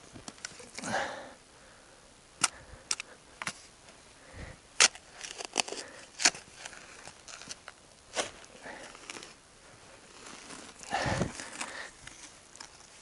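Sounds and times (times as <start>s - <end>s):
tool scraping in soil: 4.8s - 13.0s.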